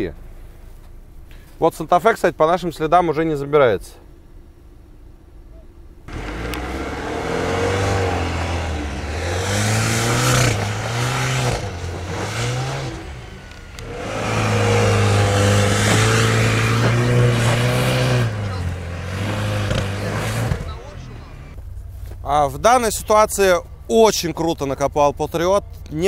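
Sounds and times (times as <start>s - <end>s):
car engine revving: 6.1s - 26.0s.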